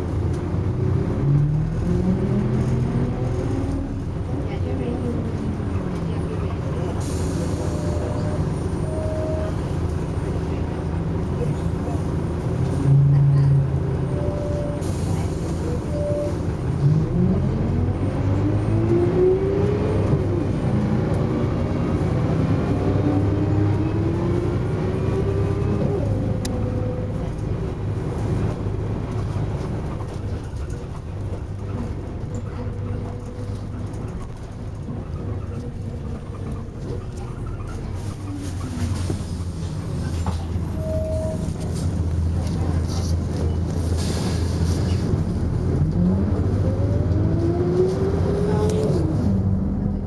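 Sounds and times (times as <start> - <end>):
bus engine and gearbox whine: 0.0 - 50.0.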